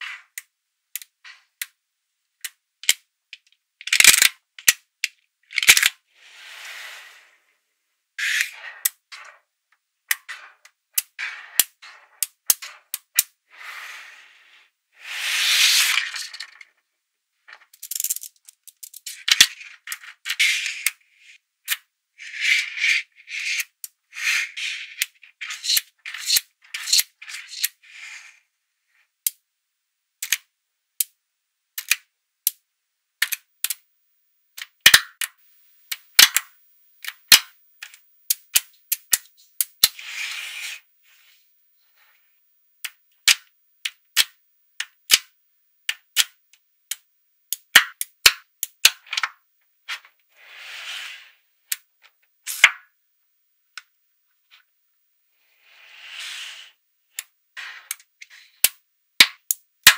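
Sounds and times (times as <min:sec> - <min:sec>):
magnetic balls snapping together: 0:02.4 - 0:06.0, 0:30.2 - 0:30.4, 0:31.8 - 0:32.6, 0:33.2 - 0:33.8, 0:34.6 - 0:40.0, 0:42.8 - 0:45.3, 0:45.9 - 0:50.1, 0:52.5 - 0:52.9, 0:57.1 - 0:59.9
balls rattling and rolling: 0:15.6 - 0:16.8, 0:17.4 - 0:21.0.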